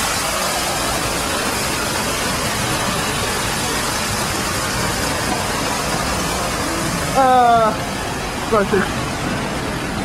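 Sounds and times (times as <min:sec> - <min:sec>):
water rushing down a fountain: 0:00.0 - 0:10.0.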